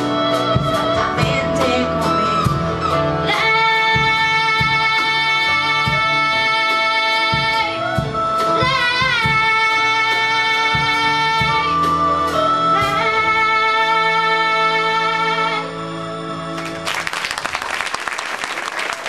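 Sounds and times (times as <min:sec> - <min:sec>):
girl singing: 0:00.0 - 0:02.5, 0:03.2 - 0:08.0, 0:08.6 - 0:15.6
live band playing a ballad: 0:00.0 - 0:17.2
drums steady beat: 0:07.2 - 0:09.7.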